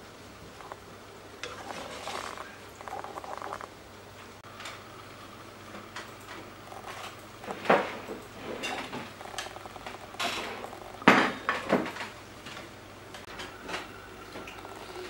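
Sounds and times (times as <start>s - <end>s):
plates knocking on wooden table: 11.0s - 12.0s.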